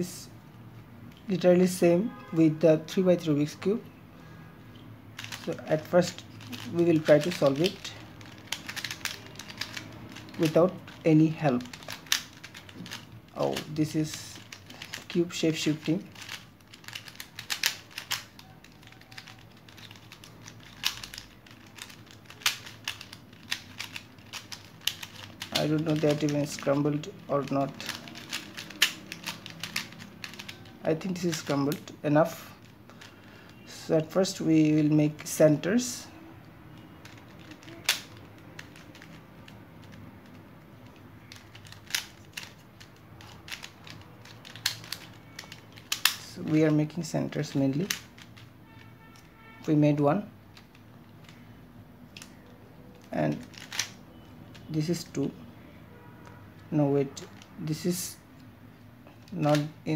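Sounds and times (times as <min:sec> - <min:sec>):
puzzle cube plastic clicks: 0:05.1 - 0:33.7, 0:36.7 - 0:49.3, 0:50.5 - 0:51.5, 0:52.1 - 0:55.2, 0:57.2 - 0:57.8, 0:59.2 - 0:59.8.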